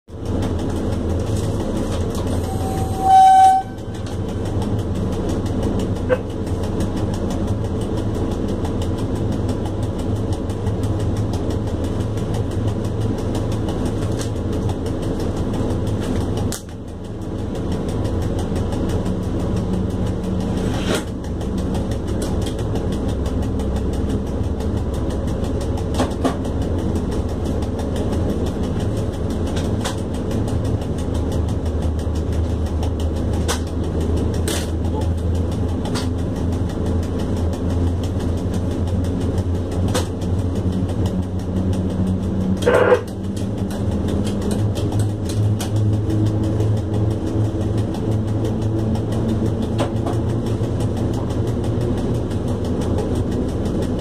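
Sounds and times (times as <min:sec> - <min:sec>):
locomotive wheels rumbling on track: 0:00.1 - 0:54.0
locomotive horn blast: 0:02.3 - 0:04.2, 0:42.6 - 0:43.1.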